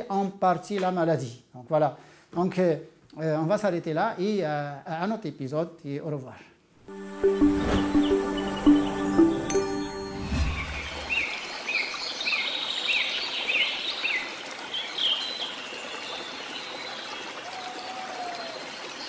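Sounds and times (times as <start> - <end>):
trickling stream: 9.5 - 19.0.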